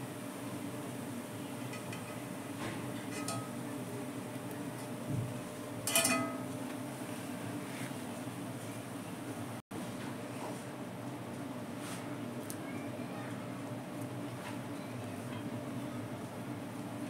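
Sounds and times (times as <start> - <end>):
steady low hum: 0.0 - 12.4
wire mesh clinking against glass: 3.1 - 3.6, 5.8 - 6.5.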